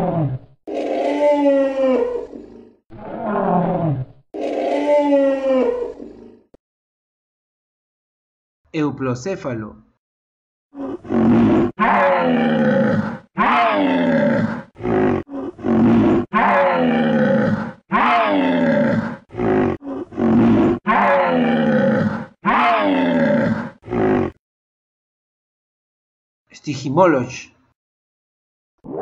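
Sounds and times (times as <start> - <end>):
dinosaur roars: 0.0 - 6.6, 10.8 - 24.4.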